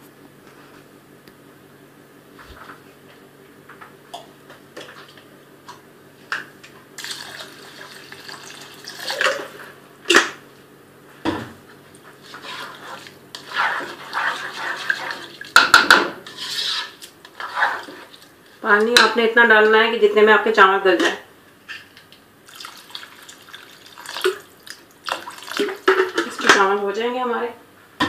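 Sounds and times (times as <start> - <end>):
water pouring into a pot: 7.0 - 9.5, 22.4 - 25.9.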